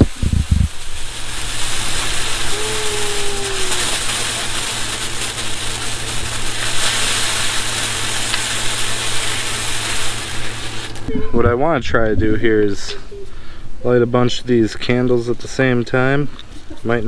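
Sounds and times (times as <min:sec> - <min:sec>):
firework fountain hissing: 0:00.0 - 0:11.1.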